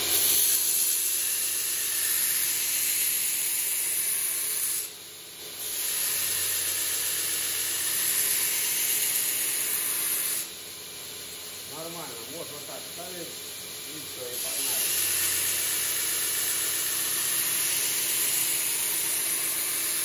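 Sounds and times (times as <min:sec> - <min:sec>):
belt grinder grinding knife: 0:00.0 - 0:04.9, 0:05.6 - 0:10.5, 0:14.2 - 0:20.0.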